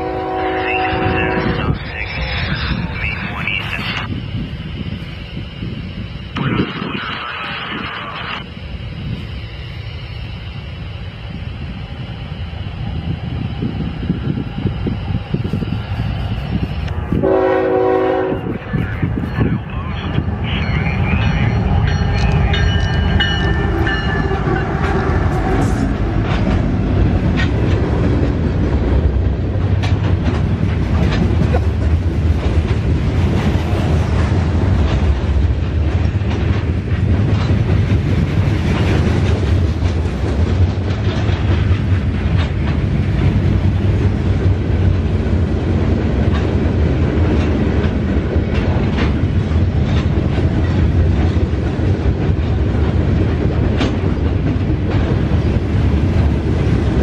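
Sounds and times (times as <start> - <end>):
train horn chord: 0.0 - 1.8, 17.1 - 18.6
freight train rumbling past: 0.0 - 57.0
wheels clacking over rail joints: 20.0 - 57.0.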